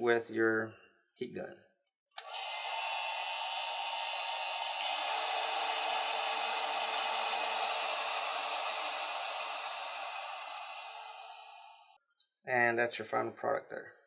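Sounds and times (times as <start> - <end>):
heat gun blowing air: 2.2 - 12.0.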